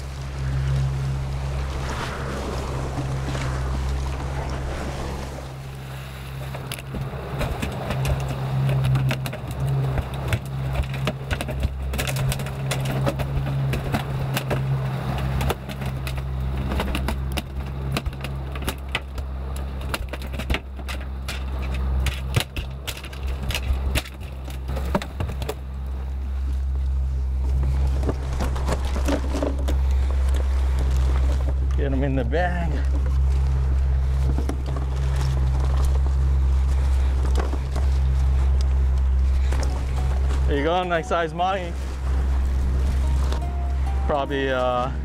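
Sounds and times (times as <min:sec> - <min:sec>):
boat engine humming: 0:00.0 - 0:45.0
fish thrashing on boat deck: 0:02.2 - 0:26.8, 0:27.4 - 0:31.8.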